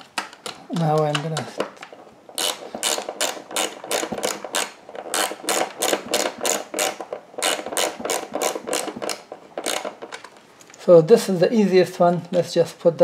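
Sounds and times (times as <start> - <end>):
ratcheting screwdriver clicking: 2.4 - 10.3.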